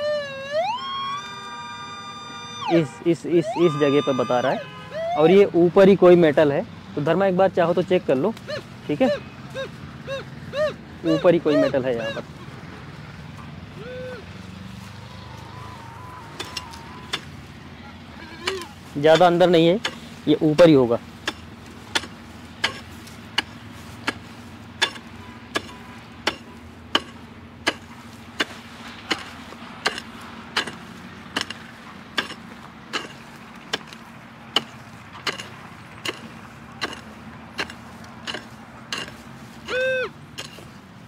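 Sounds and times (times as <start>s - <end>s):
pickaxe striking dry earth: 18.5s - 39.8s, 40.4s - 40.8s.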